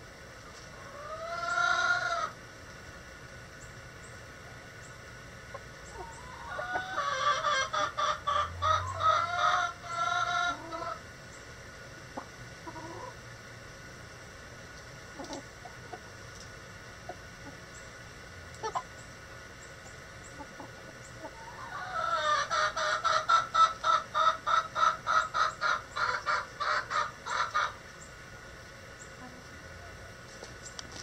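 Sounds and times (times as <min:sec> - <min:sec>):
chickens calling: 0:00.0 - 0:02.8, 0:03.5 - 0:31.0
rapid repeated chicken clucks: 0:05.4 - 0:11.0, 0:11.9 - 0:13.2, 0:15.0 - 0:16.1, 0:16.9 - 0:18.0, 0:18.6 - 0:28.2.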